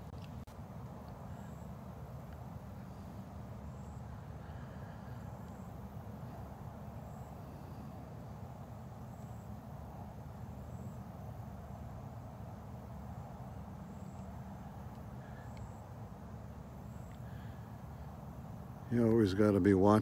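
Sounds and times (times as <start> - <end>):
low outdoor rumble: 0.0 - 20.0
faint high-pitched chirps: 13.8 - 18.2.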